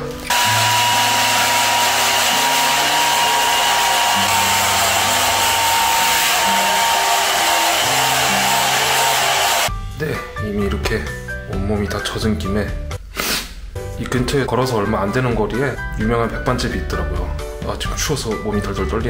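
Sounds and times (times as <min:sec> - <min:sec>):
hair dryer blowing: 0:00.3 - 0:09.7
thin motor whine: 0:00.3 - 0:09.7.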